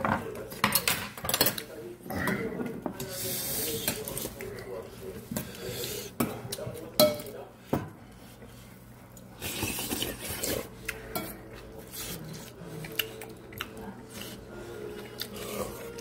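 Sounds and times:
utensils clinking on dishes: 0:00.0 - 0:04.5, 0:06.2 - 0:07.4, 0:09.4 - 0:14.3.

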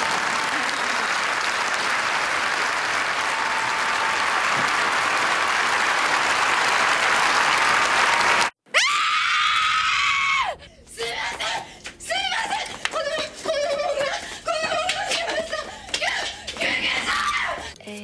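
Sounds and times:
audience applauding: 0:00.0 - 0:08.6
woman screaming: 0:08.7 - 0:12.3.

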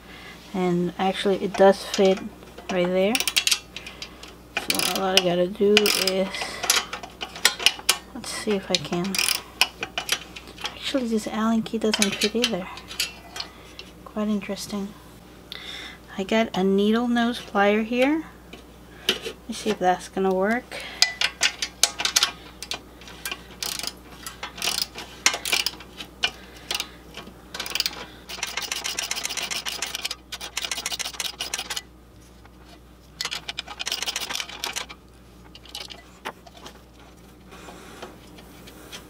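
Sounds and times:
rapid metallic ticking: 0:27.6 - 0:31.8.

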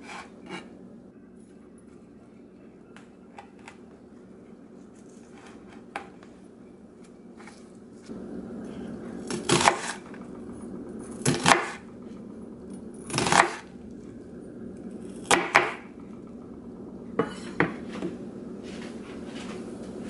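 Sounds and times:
knife slicing onion: 0:00.0 - 0:00.7, 0:09.2 - 0:10.0, 0:11.2 - 0:11.8, 0:13.1 - 0:13.6.

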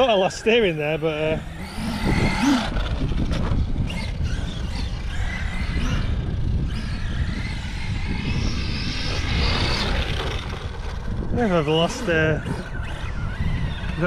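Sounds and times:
electric motor whining: 0:00.0 - 0:14.0
low rumble: 0:00.8 - 0:11.7.

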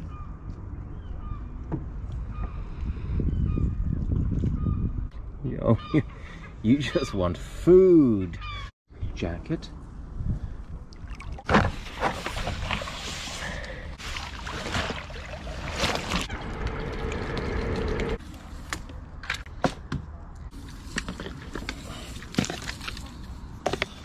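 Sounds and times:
water splashing: 0:10.9 - 0:18.2.

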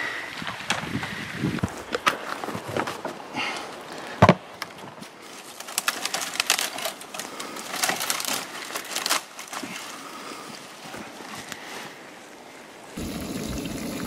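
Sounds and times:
twigs snapping and crackling: 0:04.6 - 0:10.0.

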